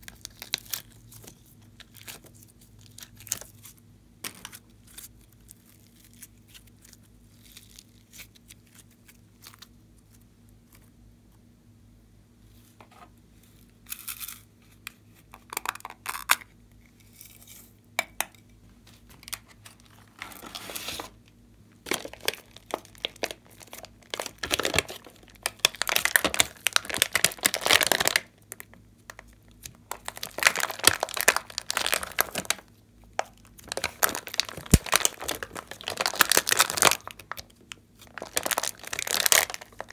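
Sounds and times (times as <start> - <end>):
slime crackling and popping: 21.8 - 39.9.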